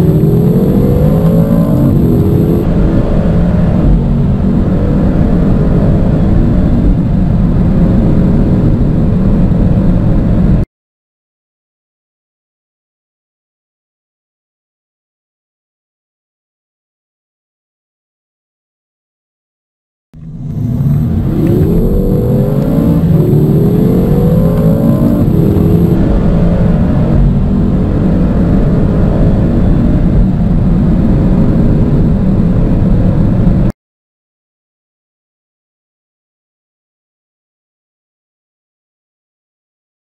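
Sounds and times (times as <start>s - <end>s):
car engine at full throttle: 0.0s - 10.6s, 20.2s - 33.7s.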